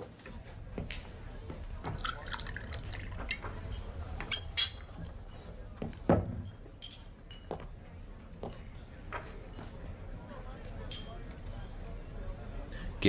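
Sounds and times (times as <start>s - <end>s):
glass clinking on wooden counter: 6.1s - 7.7s.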